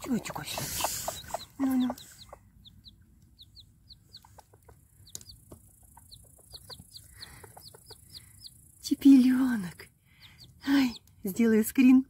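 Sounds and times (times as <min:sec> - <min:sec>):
hens clucking softly: 0:00.0 - 0:08.6
chick peeping: 0:00.0 - 0:09.0.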